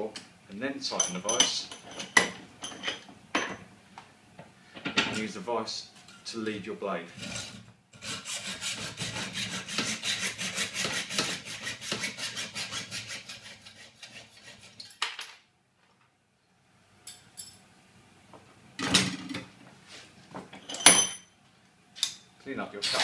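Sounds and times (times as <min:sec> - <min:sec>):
tools clattering: 0:00.9 - 0:03.6, 0:17.0 - 0:17.6, 0:20.5 - 0:21.3
hacksaw cutting steel: 0:07.2 - 0:15.0.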